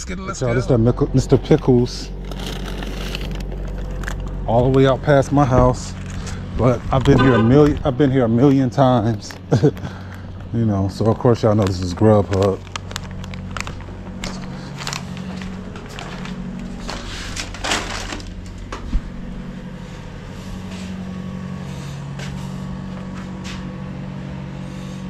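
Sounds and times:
steady low hum: 0.0s - 25.0s
takeout bag rustling: 2.2s - 4.4s, 10.9s - 18.7s.

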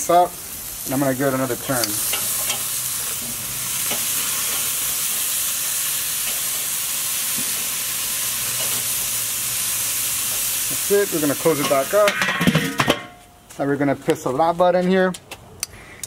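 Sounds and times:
steak sizzling on a grill: 0.0s - 12.2s.

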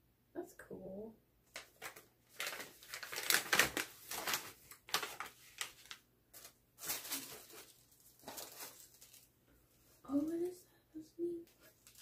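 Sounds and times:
plastic bag crinkling: 1.5s - 10.6s, 11.5s - 12.0s
tissue paper rustling: 1.5s - 10.6s, 11.5s - 12.0s.

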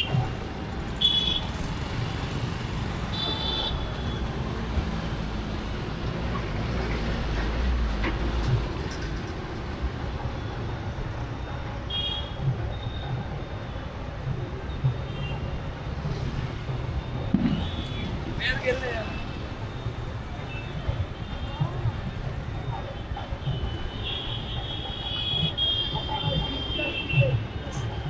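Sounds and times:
road traffic rumble: 0.0s - 28.0s.

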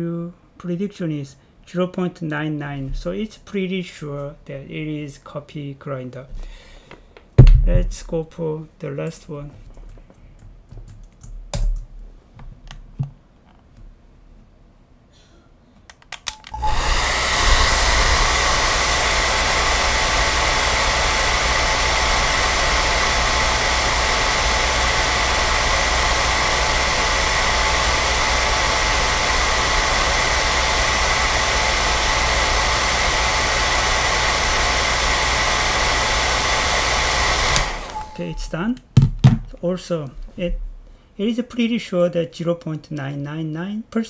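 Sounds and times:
hair dryer running: 16.3s - 38.5s.

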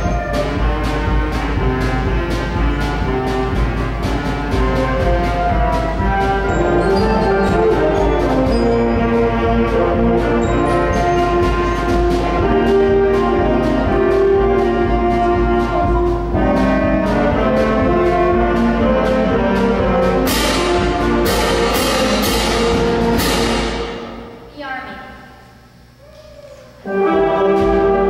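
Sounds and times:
brass band playing: 0.0s - 24.5s, 26.8s - 28.0s
steady drum beat: 0.0s - 24.5s, 26.9s - 28.0s
cymbal crashes: 20.2s - 25.4s.

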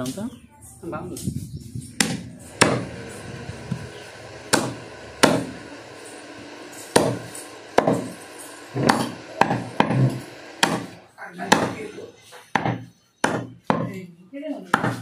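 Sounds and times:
cleaver chopping meat and bone: 2.0s - 2.9s, 4.5s - 5.6s, 6.9s - 7.2s, 7.8s - 8.2s, 8.8s - 11.9s, 12.5s - 14.0s, 14.7s - 15.0s.

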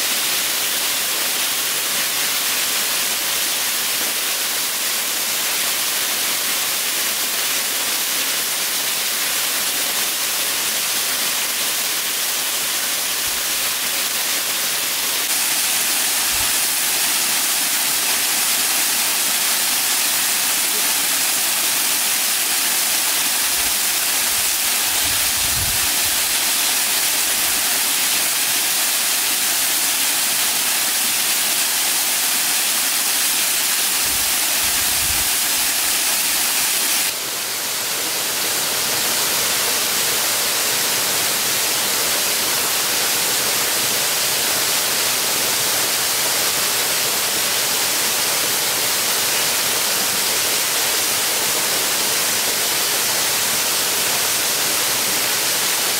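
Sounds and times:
rushing water: 0.0s - 55.9s.

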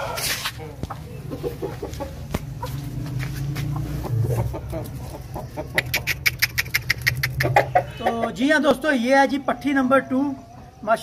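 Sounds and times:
chickens clucking: 0.0s - 10.8s
sharp clicks: 5.8s - 7.6s.

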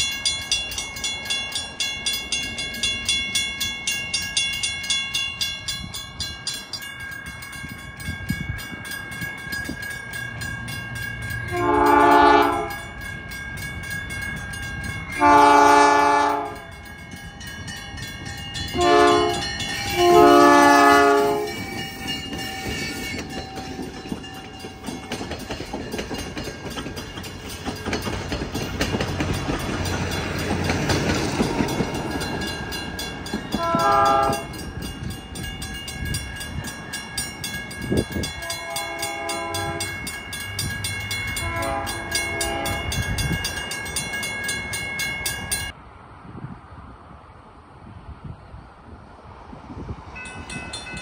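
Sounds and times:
crossing bell ringing: 0.0s - 45.8s, 50.0s - 51.0s
train cars rolling over rails: 0.0s - 45.8s
locomotive horn blast: 11.5s - 12.9s, 15.2s - 16.7s, 18.7s - 21.8s, 33.6s - 34.6s, 38.4s - 40.0s, 41.4s - 43.0s.

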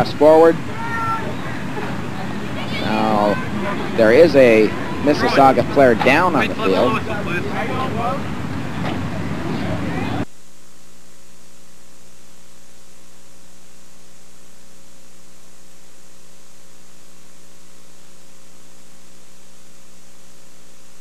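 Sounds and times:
electrical mains hum: 0.0s - 21.0s
faint hiss: 6.2s - 21.0s.

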